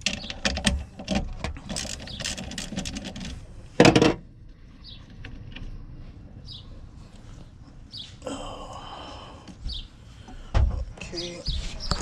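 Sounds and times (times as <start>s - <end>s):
metal clicks and rattles: 0.0s - 4.2s.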